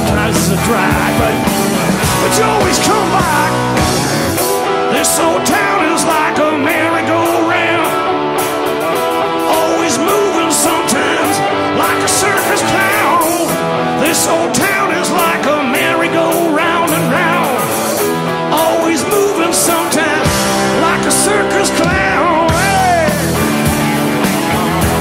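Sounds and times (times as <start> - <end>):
drum beat: 0.0 - 5.8, 19.2 - 25.0
man singing lead vocal: 0.0 - 23.7
electric guitars: 0.0 - 25.0.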